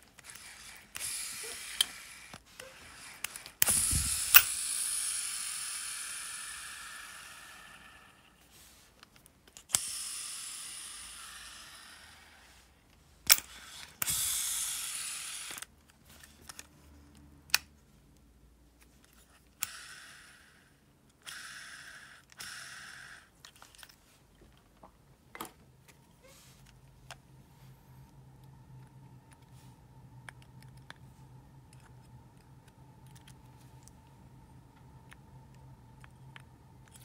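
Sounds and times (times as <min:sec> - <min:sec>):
fishing reel clicks: 0:03.2 - 0:07.2.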